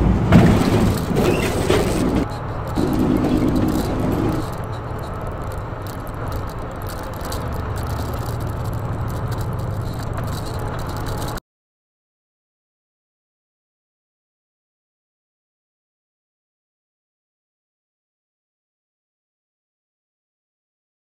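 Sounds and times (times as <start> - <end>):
rattling in truck cab: 0.0 - 11.4
truck engine and road rumble: 0.0 - 11.4.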